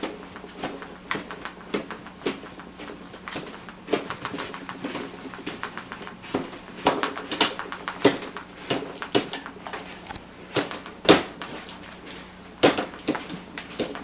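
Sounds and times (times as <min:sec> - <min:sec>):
dog paws scuffing carpet: 0:00.4 - 0:10.4.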